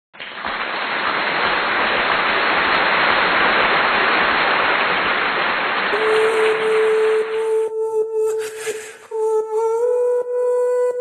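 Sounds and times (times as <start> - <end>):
steady hiss: 0.6 - 7.8.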